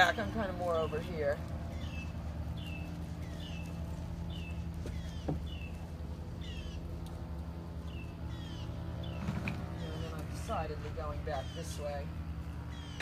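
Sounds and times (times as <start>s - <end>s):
low steady hum: 0.0s - 13.0s
bird chirping: 0.7s - 6.9s, 7.8s - 12.0s.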